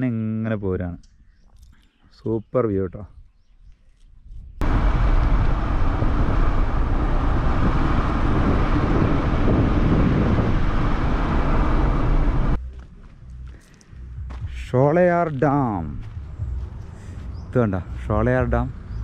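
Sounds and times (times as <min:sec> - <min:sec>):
road and wind noise of moving vehicle: 0:04.4 - 0:14.6, 0:15.4 - 0:19.0.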